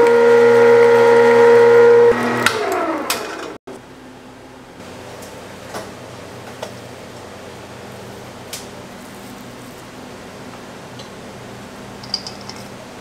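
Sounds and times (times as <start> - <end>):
meat grinder motor humming: 0.0 - 3.5.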